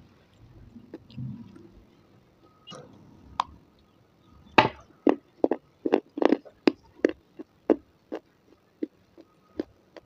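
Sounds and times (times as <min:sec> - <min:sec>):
person biting and chewing crunchily: 0:04.6 - 0:10.0.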